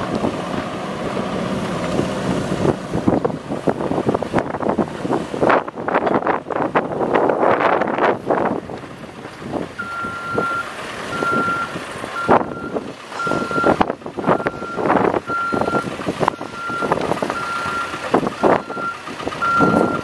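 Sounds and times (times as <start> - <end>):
wind noise on microphone: 1.9 - 20.0
backup alarm beeping: 18.6 - 20.0.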